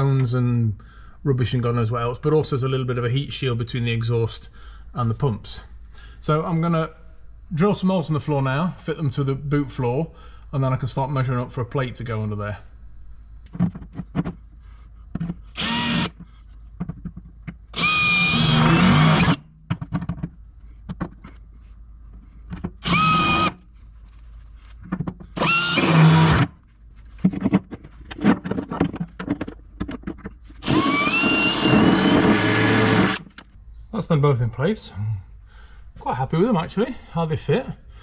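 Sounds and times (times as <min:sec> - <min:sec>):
power drill drilling into metal: 0:15.6 - 0:16.1, 0:17.7 - 0:19.4, 0:22.8 - 0:23.6, 0:25.4 - 0:26.5, 0:30.6 - 0:33.2.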